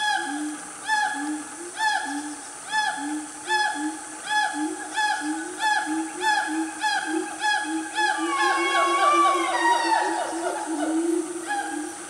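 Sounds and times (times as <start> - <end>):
lower hoots: 0.0 - 12.0
gibbons whooping: 7.5 - 11.9.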